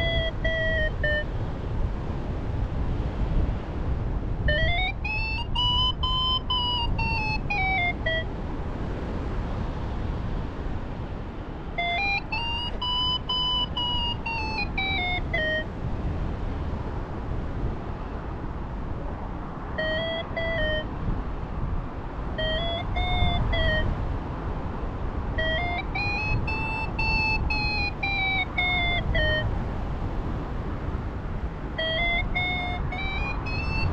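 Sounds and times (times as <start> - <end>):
variometer beeps rising and falling: 0.0 - 1.3, 4.5 - 8.2, 11.8 - 15.7, 19.8 - 20.9, 22.4 - 23.8, 25.4 - 29.5, 31.8 - 33.9
wind noise: 0.0 - 33.9.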